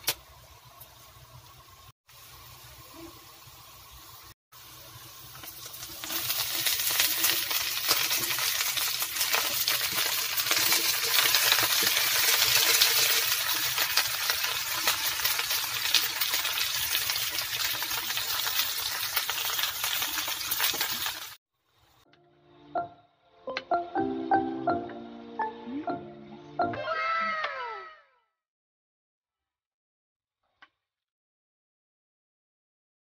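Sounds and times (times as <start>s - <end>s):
food sizzling in a pan: 0.0s - 21.4s.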